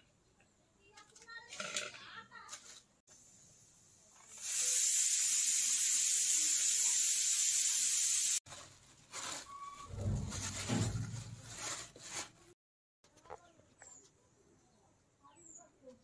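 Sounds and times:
loud steady hiss: 3.1s - 8.4s
low rumbling: 9.8s - 11.6s.

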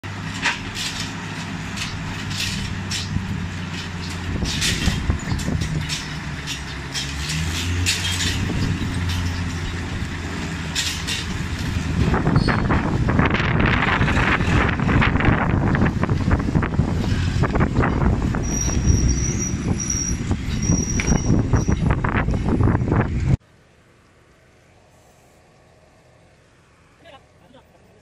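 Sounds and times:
crane and truck engines droning: 0.0s - 28.0s
sharp clanks: 0.3s - 12.9s, 17.0s - 22.4s.

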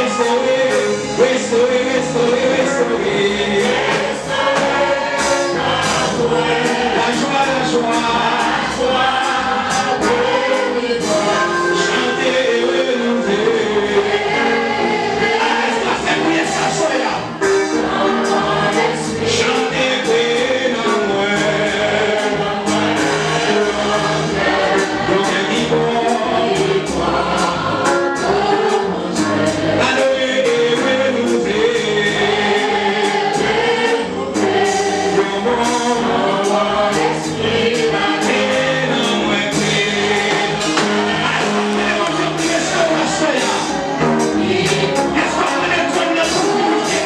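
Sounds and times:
choir singing gospel song: 0.0s - 47.0s
steady beat: 30.5s - 47.0s.

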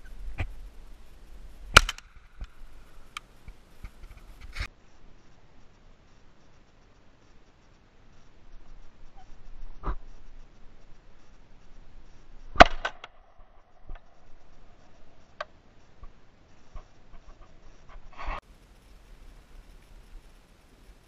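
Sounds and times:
rustle: 0.0s - 21.0s
shotgun shot: 1.7s - 2.1s, 12.6s - 13.0s.

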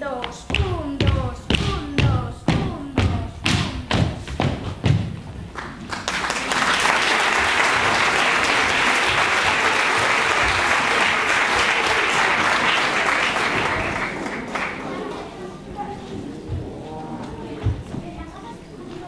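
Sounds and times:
feet stamping on stage floor: 0.2s - 5.9s, 16.4s - 18.3s
audience applauding: 5.5s - 15.4s.

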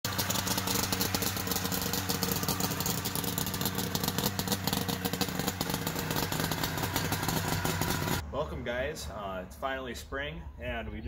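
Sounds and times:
buggy engine idling: 0.0s - 9.1s.

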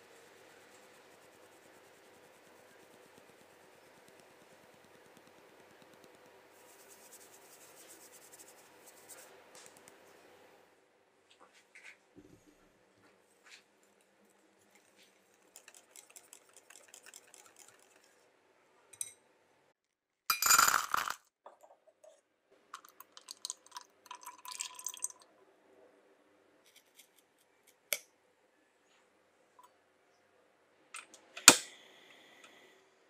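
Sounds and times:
whisk clicking against glass bowl: 15.4s - 18.2s
chocolate buttons clattering into saucepan: 20.3s - 21.9s.

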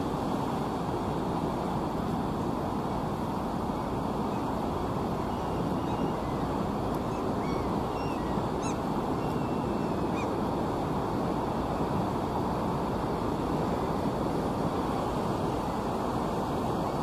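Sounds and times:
faint bird chirps: 5.2s - 6.4s, 7.1s - 10.3s.

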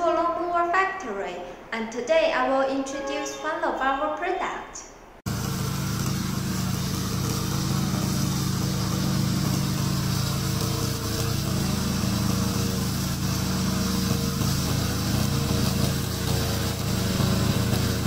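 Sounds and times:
mower engine running: 5.3s - 18.0s.

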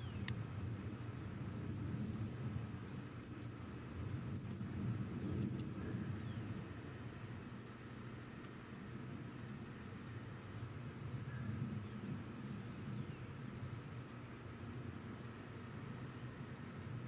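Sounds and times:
nestling birds squeaking: 0.0s - 1.0s, 1.6s - 2.4s, 3.2s - 3.6s, 4.3s - 4.6s, 5.4s - 5.7s
low steady rumble: 0.0s - 17.0s.

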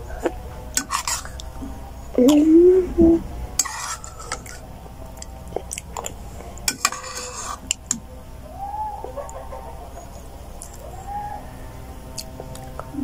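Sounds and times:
metal spoon scraping plastic bowl: 0.8s - 1.4s, 3.6s - 4.6s, 6.7s - 7.8s
chewing: 3.6s - 7.8s.

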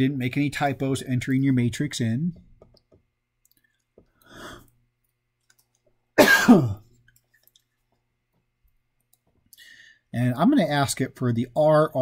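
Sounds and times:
person breathing: 4.2s - 4.7s, 9.5s - 10.1s
person coughing: 6.2s - 6.9s.

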